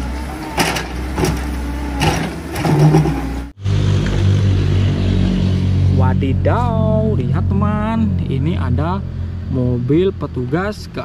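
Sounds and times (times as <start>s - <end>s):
excavator diesel engine running: 0.0s - 4.4s.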